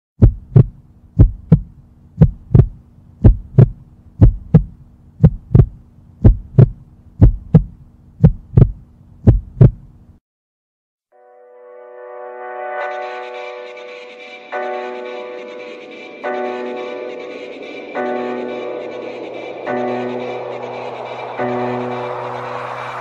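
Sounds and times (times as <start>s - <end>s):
heartbeat thumping: 0.2s - 9.9s.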